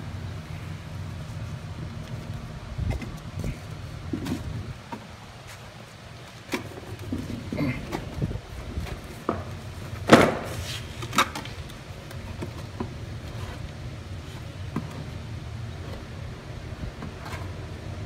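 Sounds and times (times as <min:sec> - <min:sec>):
steady low hum: 0:00.0 - 0:18.0
lawn mower clunking on concrete: 0:01.8 - 0:13.8.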